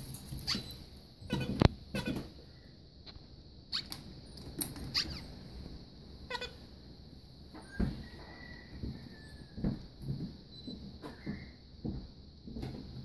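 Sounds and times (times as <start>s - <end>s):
bird squeaks: 0.4s - 2.2s, 3.7s - 4.0s, 4.9s - 5.3s.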